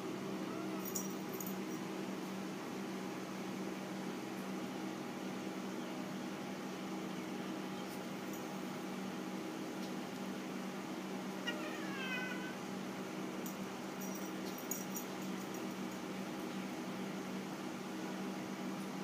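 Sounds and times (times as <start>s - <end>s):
cat meowing: 0.5s - 0.9s, 11.4s - 12.6s.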